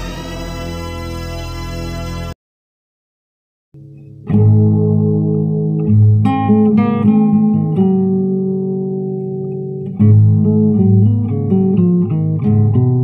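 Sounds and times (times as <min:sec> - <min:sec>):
plucked string instrument music: 0:03.8 - 0:13.0.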